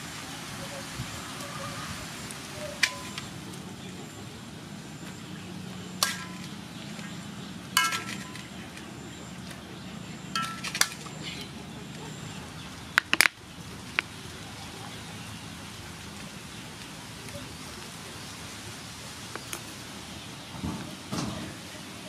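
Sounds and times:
metal clinks against wok: 7.8 - 8.5, 10.4 - 11.0.

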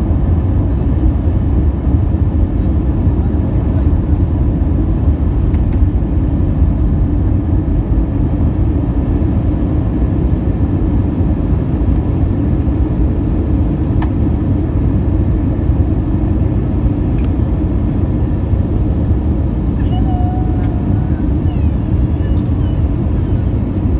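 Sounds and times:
jet engine and airflow rush: 0.0 - 23.9
small click: 17.1 - 17.4.

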